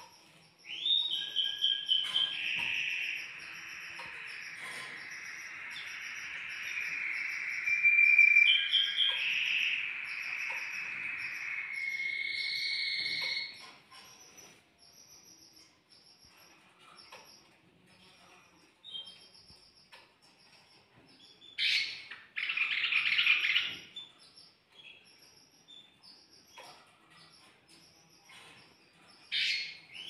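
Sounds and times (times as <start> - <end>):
fast high-pitched chirping: 0.0 - 14.4
canary singing trills: 0.0 - 30.0.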